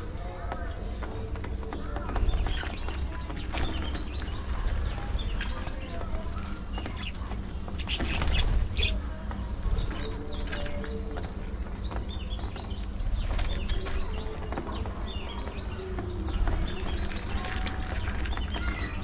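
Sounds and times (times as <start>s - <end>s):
budgerigars chirping: 6.8s - 14.2s.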